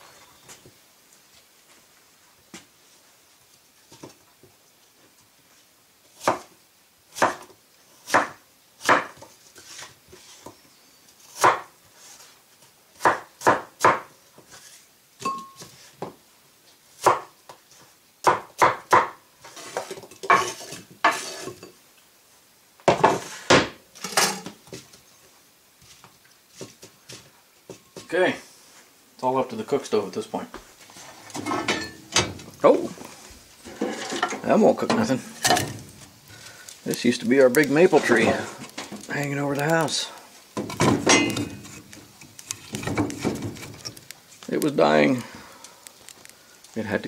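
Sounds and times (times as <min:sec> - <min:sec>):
knife chopping on wooden board: 0:08.1 - 0:09.3, 0:11.4 - 0:11.7, 0:13.0 - 0:14.1, 0:17.0 - 0:17.3, 0:18.2 - 0:19.2.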